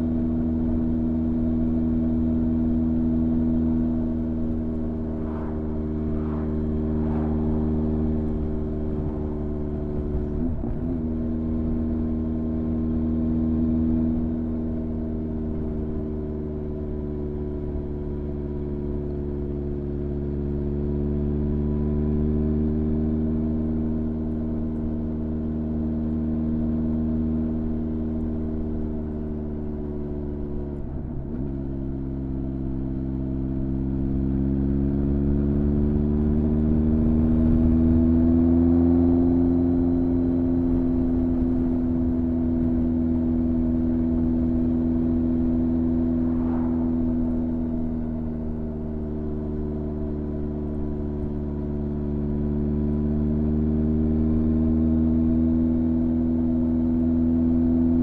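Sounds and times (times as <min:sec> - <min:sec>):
motorcycle engine running: 0:22.0 - 0:58.0.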